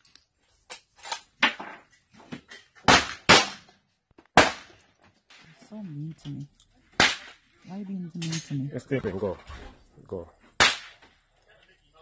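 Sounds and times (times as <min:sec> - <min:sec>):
pistol shots: 0:02.9 - 0:03.7, 0:04.4 - 0:04.7, 0:10.6 - 0:11.0.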